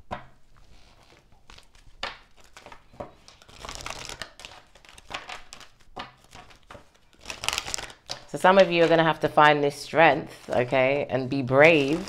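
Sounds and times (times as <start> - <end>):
papery rustling of cards: 0.5 - 12.0
cards snapping and tapping: 1.9 - 8.3.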